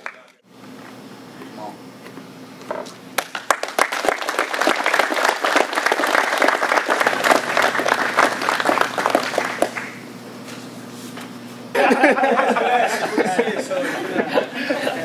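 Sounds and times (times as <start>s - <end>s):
group applauding: 0.0s - 0.4s, 3.2s - 10.0s.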